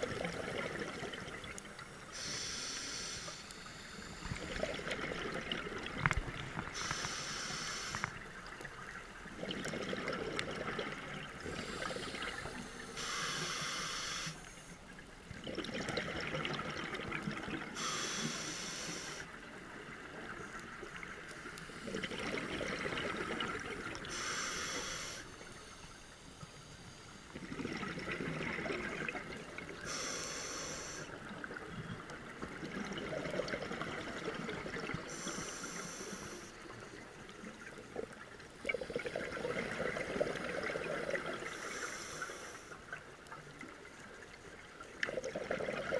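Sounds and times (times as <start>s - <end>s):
exhaled bubbles burbling: 0.0s - 1.6s, 4.3s - 6.8s, 9.3s - 12.5s, 15.3s - 17.8s, 21.8s - 24.1s, 27.3s - 29.9s, 31.2s - 35.1s, 37.8s - 41.5s, 44.9s - 45.9s
regulator inhale hiss: 2.0s - 4.6s, 6.6s - 8.2s, 11.4s - 14.9s, 17.7s - 19.4s, 23.9s - 27.3s, 29.8s - 31.6s, 34.9s - 37.0s, 41.4s - 43.0s.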